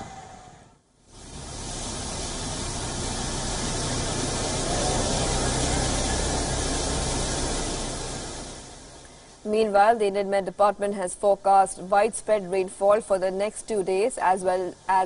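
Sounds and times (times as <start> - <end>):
floodwater rushing: 1.1 - 9.4.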